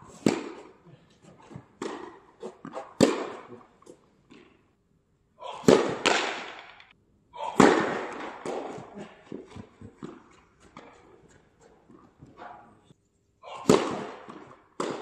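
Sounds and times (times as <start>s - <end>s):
racket hitting tennis ball: 0.0s - 4.6s, 5.5s - 12.9s, 13.5s - 15.0s
tennis ball bouncing: 0.1s - 4.6s, 5.6s - 6.9s, 7.6s - 12.8s, 13.6s - 15.0s.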